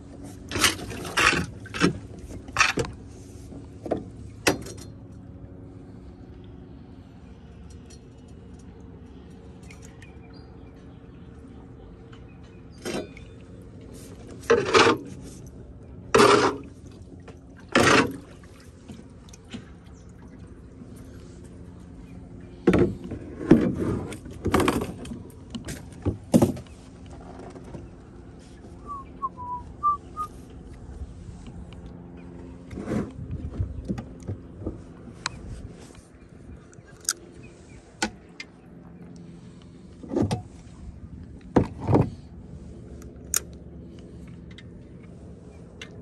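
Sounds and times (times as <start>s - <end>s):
steady low hum: 0.0s - 46.0s
paddle splashing in water: 16.1s - 21.7s.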